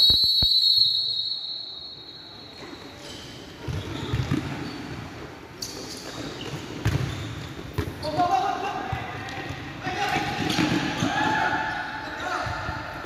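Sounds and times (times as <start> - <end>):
referee's whistle blast: 0.0 - 2.7.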